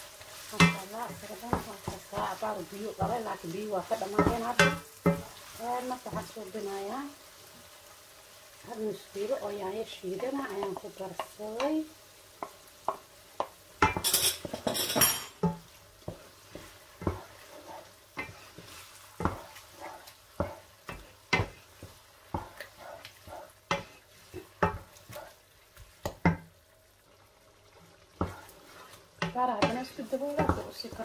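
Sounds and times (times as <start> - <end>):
wooden spoon scraping a pan: 0.0 - 7.8, 8.6 - 26.6, 27.7 - 31.0
faint sizzle: 0.0 - 31.0
spoon knocking on pan: 0.5 - 5.4, 10.2 - 17.4, 18.2 - 19.6, 20.4 - 26.6, 28.2 - 28.5, 29.2 - 31.0.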